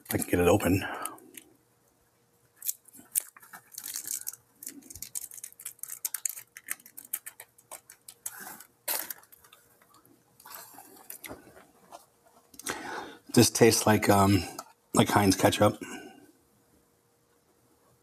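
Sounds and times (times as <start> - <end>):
plastic lid peeling crinkles: 2.6 - 12.7.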